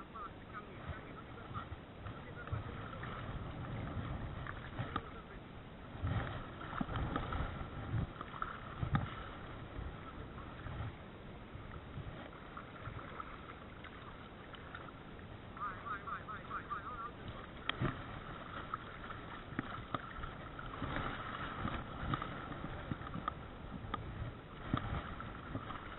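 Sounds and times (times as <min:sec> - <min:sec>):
shallow water sloshing around legs: 0:00.0 - 0:25.9
wind on microphone: 0:00.0 - 0:25.9
splashes or knocks: 0:06.0 - 0:09.4, 0:17.2 - 0:25.9.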